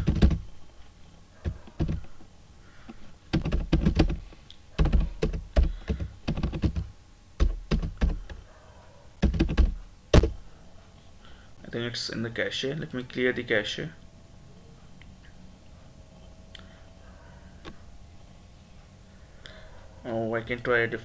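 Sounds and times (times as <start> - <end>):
keyboard typing: 0.0 - 0.5, 1.4 - 2.2, 2.9 - 4.2, 4.8 - 8.4, 9.2 - 10.4.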